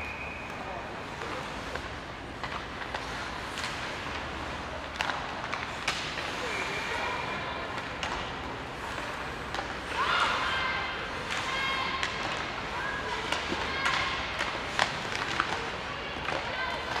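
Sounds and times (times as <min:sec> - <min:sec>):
hockey sticks and puck clacking: 0:00.0 - 0:07.0, 0:07.7 - 0:17.0.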